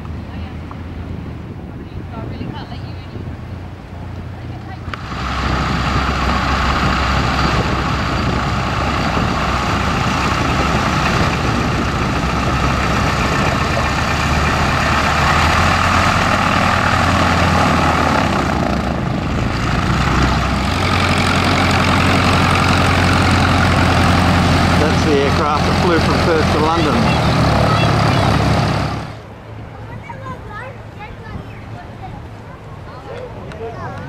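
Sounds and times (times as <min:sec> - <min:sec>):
biplane piston engines idling: 0:04.4 - 0:29.3.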